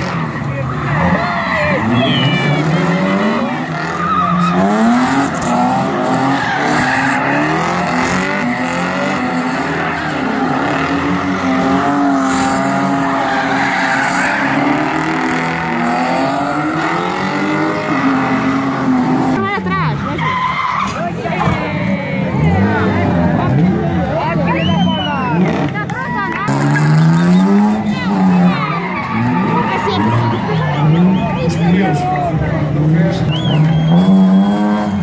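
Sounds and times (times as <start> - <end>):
car engines revving hard: 0.0 - 35.0
tyres squealing: 0.1 - 21.5.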